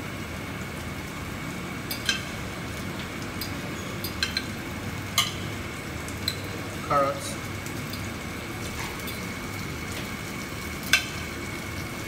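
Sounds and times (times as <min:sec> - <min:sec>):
onions sizzling in oil: 0:00.0 - 0:12.0
tongs clinking on metal tray: 0:01.9 - 0:02.3, 0:03.4 - 0:04.5, 0:05.2 - 0:05.4.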